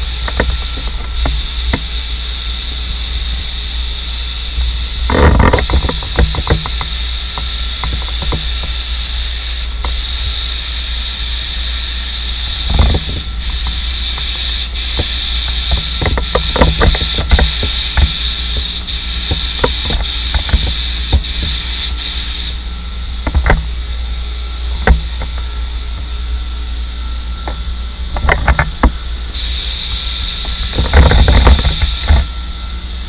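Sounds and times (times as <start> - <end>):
paint spray gun hissing: 0.0 - 22.7, 29.4 - 32.3
steady low hum: 0.0 - 33.0.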